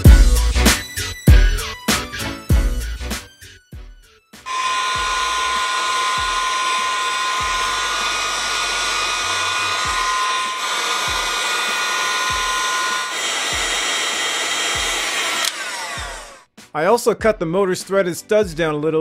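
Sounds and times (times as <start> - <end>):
heat gun blowing with high whine: 4.5 - 16.4.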